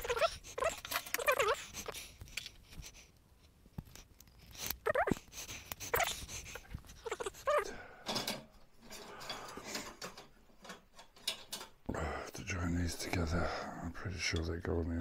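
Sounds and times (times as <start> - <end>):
dog whining: 0.0 - 2.1, 4.5 - 7.7
shelving parts clicking and rattling: 8.0 - 11.8.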